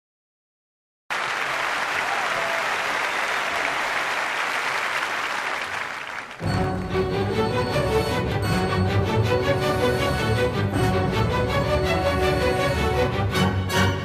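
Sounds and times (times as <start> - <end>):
applause: 1.1 - 6.8.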